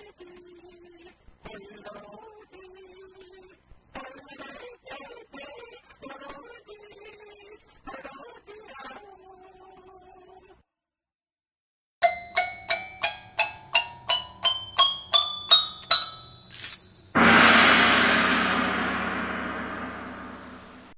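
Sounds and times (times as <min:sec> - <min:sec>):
high sparkle: 0:12.0 - 0:20.9
musical jingle: 0:12.0 - 0:20.9
quick bell-like strikes: 0:12.0 - 0:20.9
loud ringing crash: 0:15.2 - 0:20.9.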